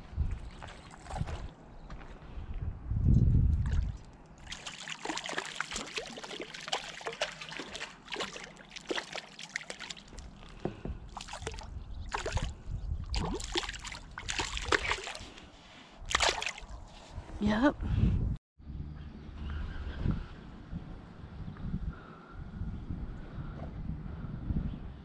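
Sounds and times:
fish splashing in water: 3.7 - 12.5, 13.1 - 15.4, 16.1 - 16.8.

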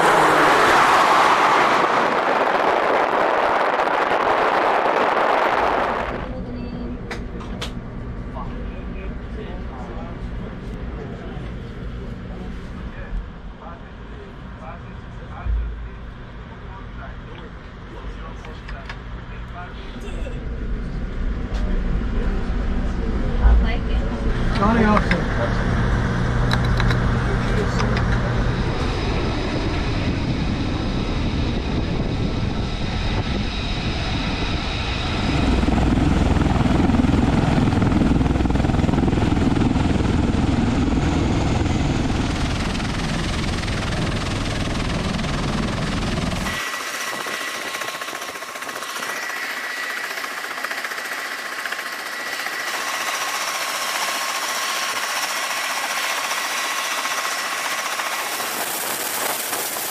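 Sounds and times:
aircraft engines and rotors running: 0.0 - 59.9
high turbine whine: 0.0 - 59.9
hiss: 55.4 - 59.9.

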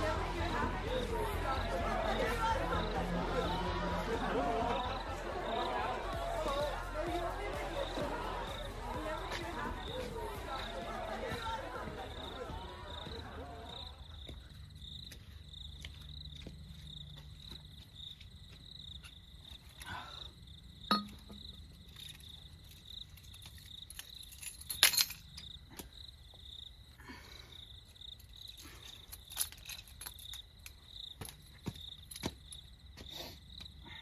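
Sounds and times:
crickets chirping: 0.0 - 34.0
sharp clinks: 20.9 - 22.4.

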